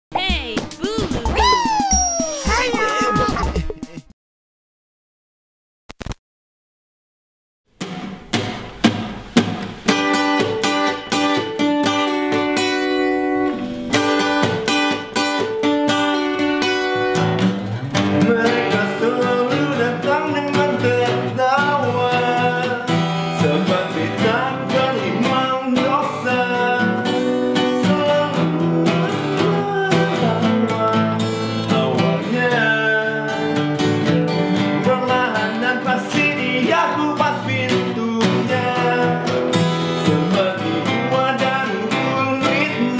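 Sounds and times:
acoustic guitars playing: 0.2s - 3.9s, 7.7s - 42.9s
man singing: 18.1s - 33.9s, 34.6s - 42.9s.

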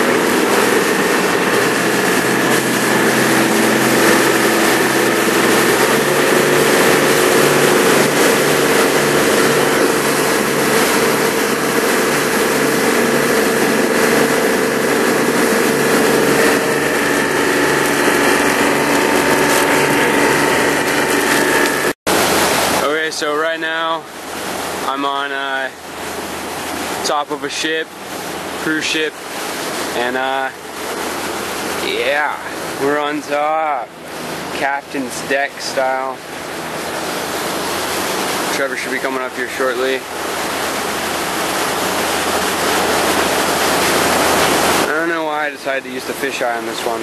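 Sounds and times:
wind rushing: 0.0s - 22.8s
boat engine running: 0.0s - 47.0s
water rushing past hull: 0.0s - 47.0s.

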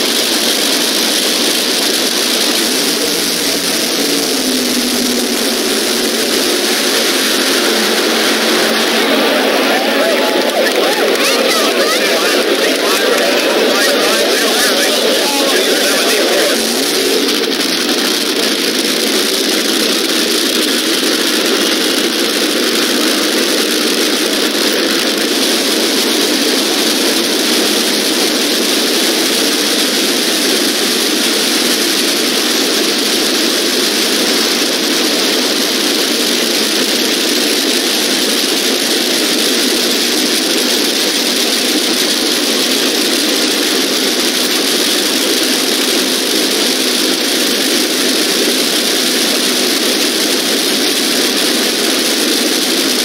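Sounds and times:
drag racing engines idling: 0.0s - 53.0s.

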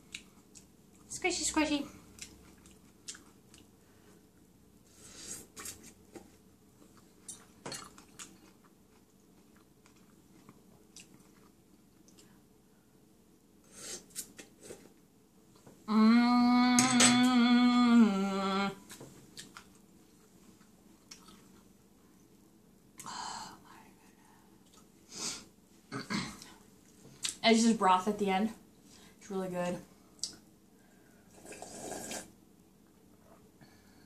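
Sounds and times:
person humming mmm: 15.9s - 18.9s
chewing and slurping noodles: 31.3s - 32.3s.

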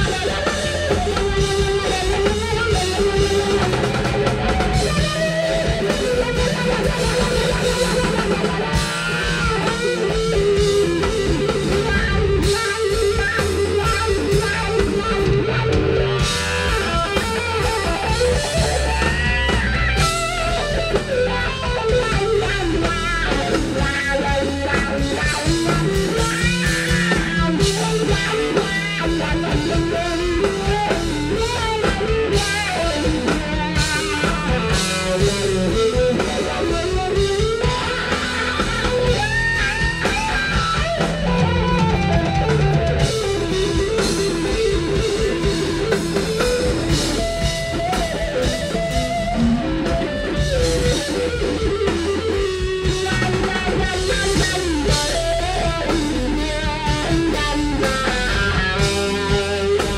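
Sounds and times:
bass guitar: 0.0s - 59.9s
drum kit: 0.0s - 59.9s
loud electric guitar: 0.0s - 59.9s.

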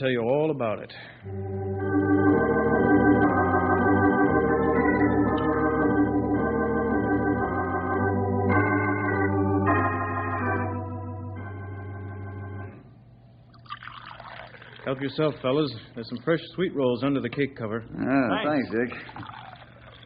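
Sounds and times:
held organ chords: 1.2s - 13.1s.

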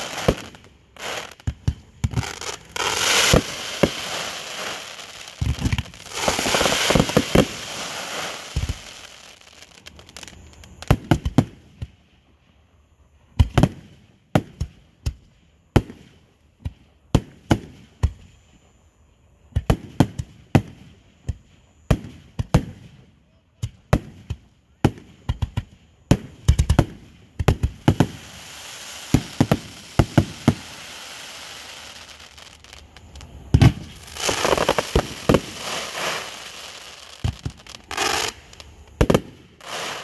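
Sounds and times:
fireworks bangs: 0.0s - 11.5s, 24.8s - 40.0s
fireworks crackling bursts: 0.0s - 11.9s, 23.6s - 40.0s.

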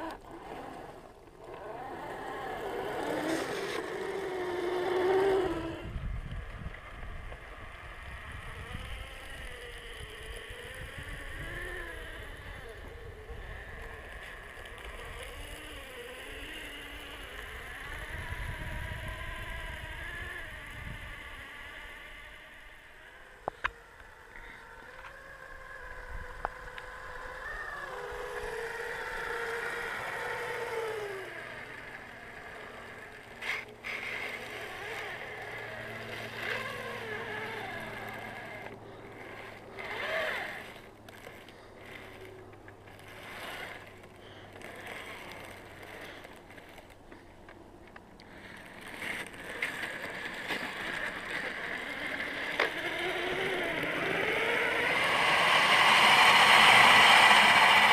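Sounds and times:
electric motor and gear whine: 0.0s - 57.9s.

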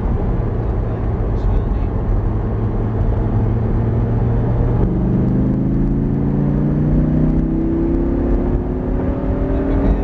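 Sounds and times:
car engine accelerating: 0.0s - 10.0s
wind and road noise: 0.0s - 10.0s.

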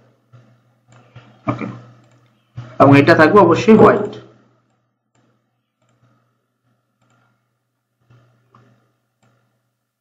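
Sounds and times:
low steady hum: 0.0s - 10.0s
faint computer mouse clicks: 2.0s - 2.4s, 4.7s - 6.3s, 7.0s - 7.4s, 8.0s - 9.5s.

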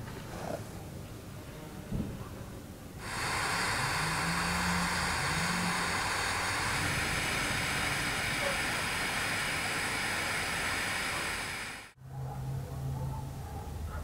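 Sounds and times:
gas torch hissing: 3.0s - 12.0s.

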